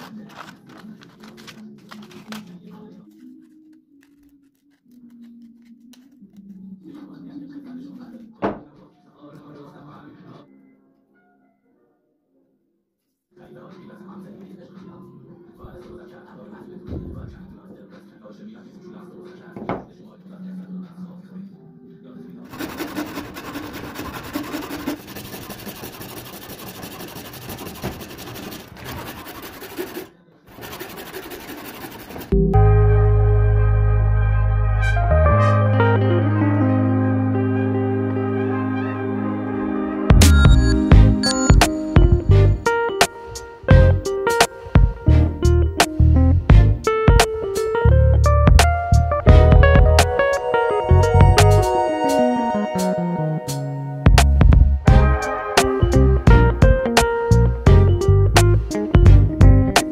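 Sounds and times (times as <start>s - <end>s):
scissors snipping paper: 0.0s - 6.6s
hand saw cutting wood: 22.5s - 32.3s
soft background music: 32.3s - 59.9s.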